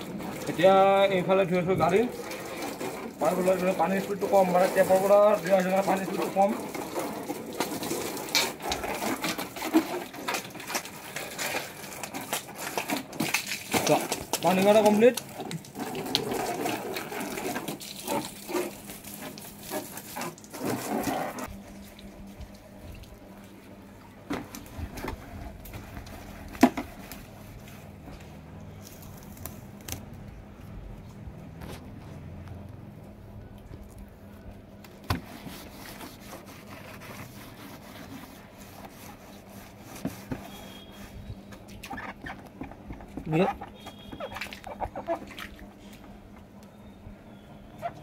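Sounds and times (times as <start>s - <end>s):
water from hose splashing on plastic: 0.0s - 30.8s, 31.4s - 46.6s
cloth wiping plastic panels: 24.3s - 28.4s, 34.8s - 45.3s.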